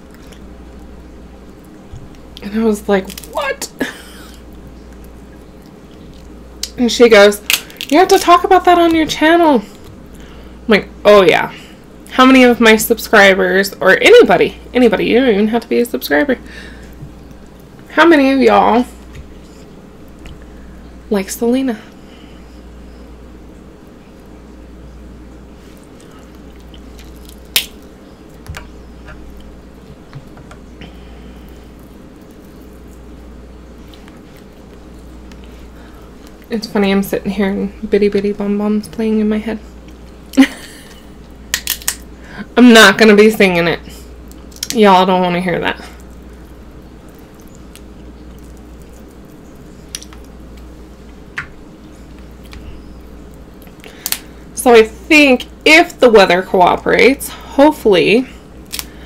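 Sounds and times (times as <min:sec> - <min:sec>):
low steady hum: 0:00.0 - 0:59.0
shrimp shell cracking: 0:03.0 - 0:03.4, 0:07.4 - 0:08.3, 0:26.4 - 0:27.9, 0:41.5 - 0:42.1, 0:44.2 - 0:44.8, 0:47.2 - 0:50.6, 0:53.6 - 0:54.3, 0:58.6 - 0:59.0
wet squishing: 0:25.6 - 0:28.5, 0:31.3 - 0:36.5, 0:45.9 - 0:54.4.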